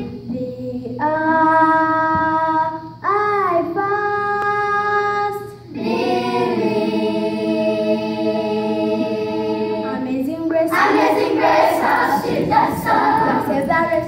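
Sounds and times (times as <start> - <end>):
children's choir singing: 5.7 - 14.0.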